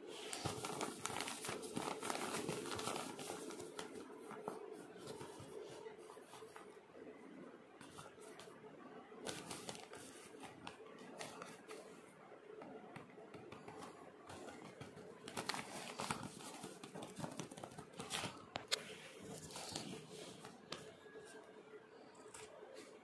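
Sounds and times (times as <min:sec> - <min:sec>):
paper packet crinkling: 0:00.1 - 0:05.3, 0:15.2 - 0:20.8
sharp paper crackles: 0:00.1 - 0:05.5, 0:09.2 - 0:11.8, 0:14.3 - 0:20.9.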